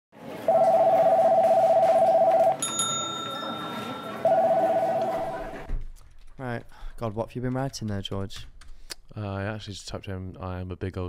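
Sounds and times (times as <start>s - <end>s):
electronic telephone ringing: 0.5s - 5.7s
bright chime: 2.5s - 5.1s.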